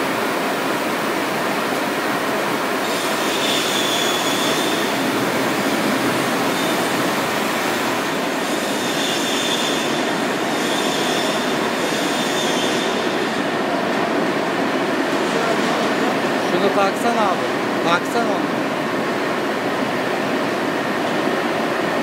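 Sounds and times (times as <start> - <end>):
rushing air from fans: 0.1 - 22.0
faint high whistle: 2.9 - 4.9, 8.8 - 10.0, 10.6 - 13.0.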